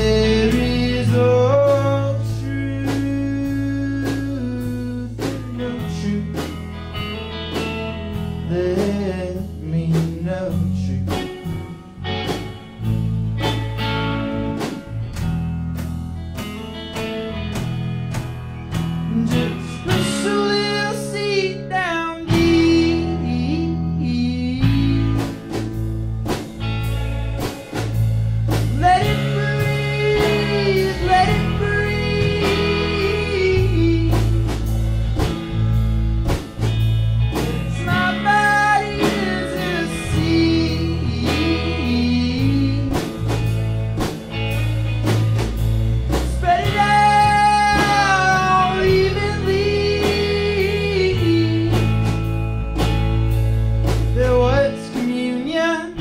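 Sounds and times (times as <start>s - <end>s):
man singing: 0.0s - 6.6s, 8.5s - 11.8s, 19.0s - 25.7s, 28.6s - 34.8s, 37.3s - 43.4s, 46.2s - 52.3s, 54.1s - 56.0s
electric guitar: 0.0s - 56.0s
rock band playing: 0.0s - 56.0s.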